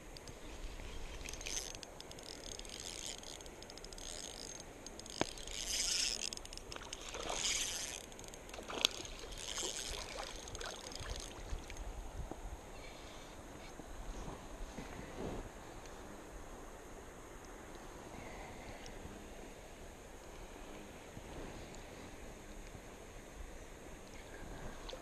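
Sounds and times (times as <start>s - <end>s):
river water splashing: 0.6s - 12.0s
water trickling: 1.2s - 11.8s.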